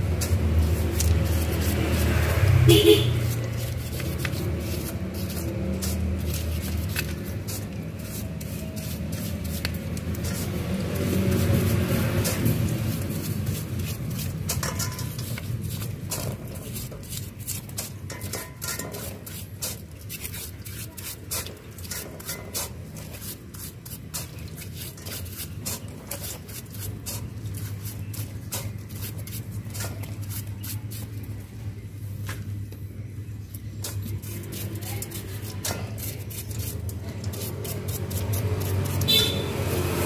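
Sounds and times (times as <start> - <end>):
brush scrubbing metal: 0.0 - 31.5, 33.6 - 40.0.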